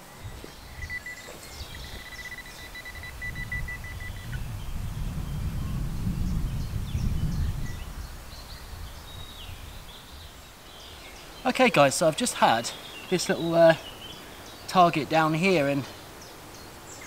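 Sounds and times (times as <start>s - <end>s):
bird chirps: 0.0s - 5.7s
metal detector beeping: 0.8s - 4.2s.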